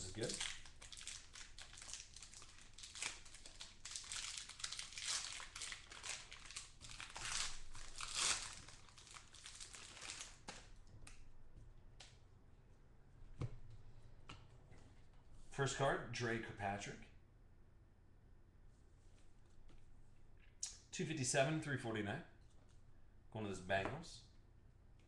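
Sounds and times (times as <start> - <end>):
plastic wrapper crinkling and tearing: 0.0 - 10.8.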